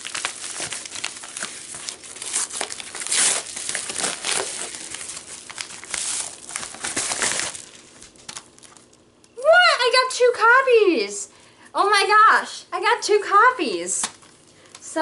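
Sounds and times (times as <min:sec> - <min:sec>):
paper envelope tearing and crinkling: 0:00.0 - 0:08.9.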